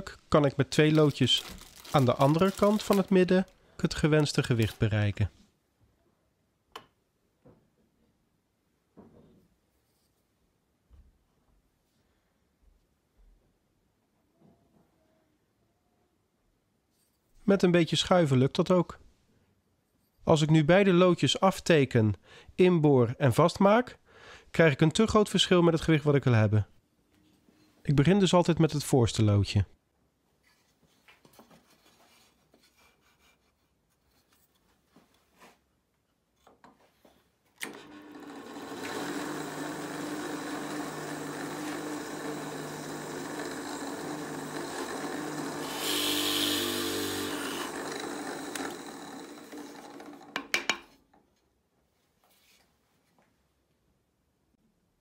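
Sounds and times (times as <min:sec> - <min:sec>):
drill press motor humming: 0:37.6 - 0:50.4
drill bit boring wood: 0:37.6 - 0:50.5.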